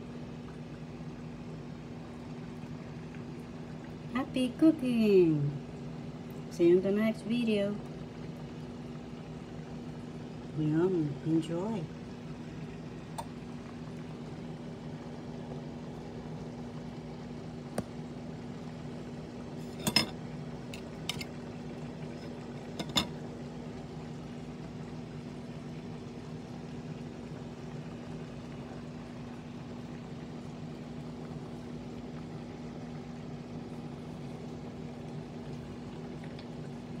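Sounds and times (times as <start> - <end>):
low machine hum: 0.0 - 37.0
tableware clinks: 19.8 - 20.1.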